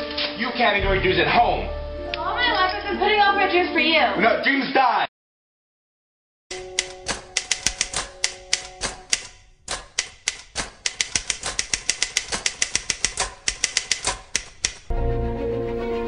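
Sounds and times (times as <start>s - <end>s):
electric typewriter typing: 6.5s - 14.9s.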